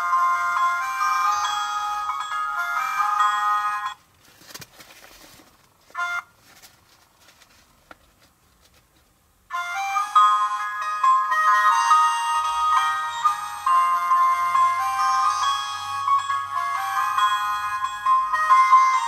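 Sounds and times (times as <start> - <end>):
music-box-like chiming music: 0.0 - 4.0, 9.5 - 19.0
plastic doll clicks and rustles: 4.0 - 9.2.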